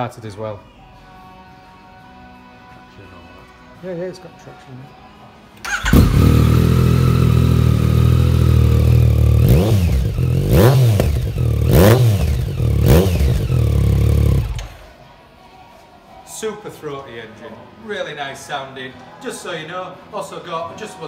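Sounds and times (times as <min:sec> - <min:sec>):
motorcycle engine revving: 0:05.6 - 0:14.9.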